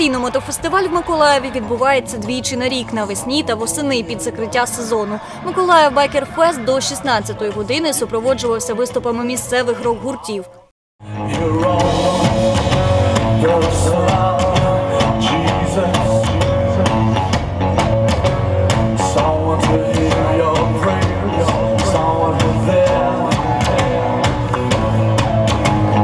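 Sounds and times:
bass guitar: 11.0 - 26.0
electric guitar: 11.0 - 26.0
drum kit beat: 11.3 - 26.0.

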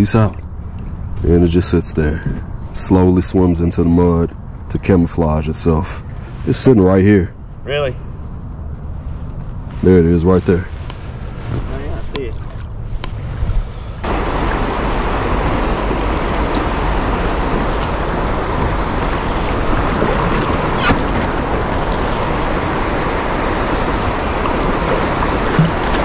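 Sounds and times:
river rapids rushing: 14.0 - 26.0.

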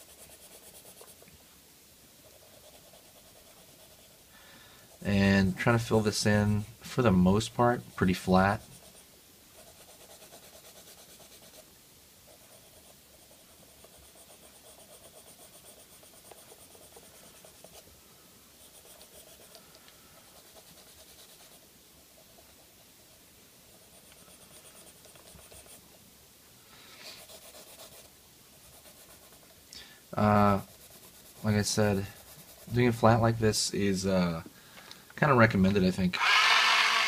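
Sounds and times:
pencil shading on paper: 0.0 - 1.2, 2.3 - 4.2, 7.3 - 11.6, 12.3 - 17.8, 18.6 - 19.6, 20.2 - 21.6, 23.8 - 25.8, 27.2 - 29.4, 30.5 - 32.8.

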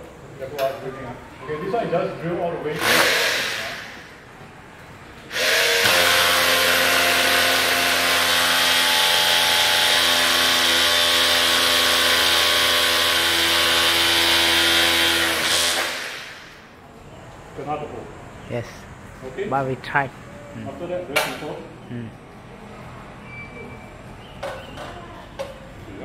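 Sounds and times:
cordless drill boring into concrete: 2.8 - 3.8, 5.3 - 16.4.

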